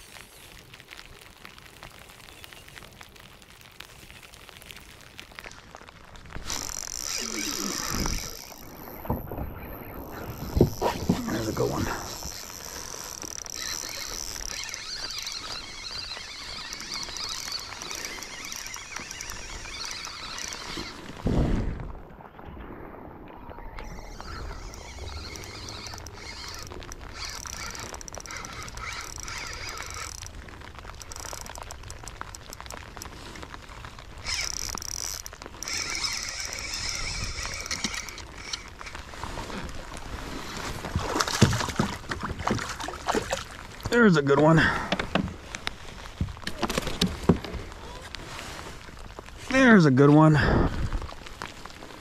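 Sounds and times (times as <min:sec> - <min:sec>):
fish splashing: 0:00.0 - 0:21.8, 0:23.6 - 0:44.0
rain pattering on water: 0:00.0 - 0:52.0
wind noise: 0:06.2 - 0:12.4, 0:15.4 - 0:31.5, 0:50.4 - 0:52.0
fishing reel whirring: 0:06.4 - 0:21.1, 0:23.8 - 0:33.1, 0:34.2 - 0:39.0.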